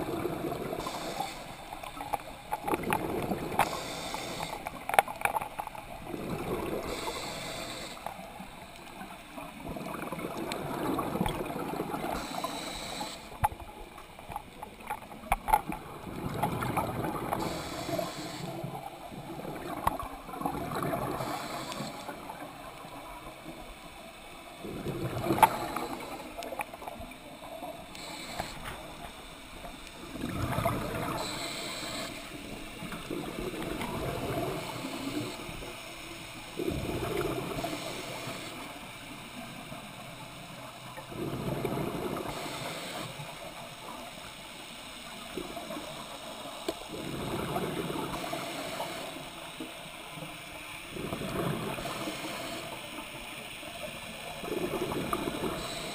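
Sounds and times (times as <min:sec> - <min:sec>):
underwater bubbles gurgling: 0:00.0 - 0:55.9.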